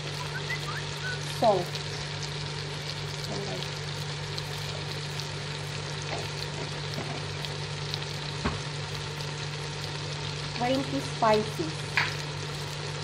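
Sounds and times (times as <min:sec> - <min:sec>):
food sizzling in a pot: 0:00.0 - 0:13.0.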